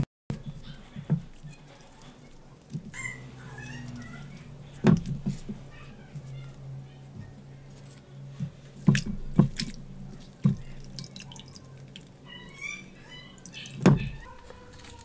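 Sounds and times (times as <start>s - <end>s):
low steady hum: 0.0s - 15.0s
basket knocking on bowls: 4.7s - 6.3s, 8.4s - 10.8s, 13.7s - 15.0s
batter dripping and splashing: 7.7s - 14.2s.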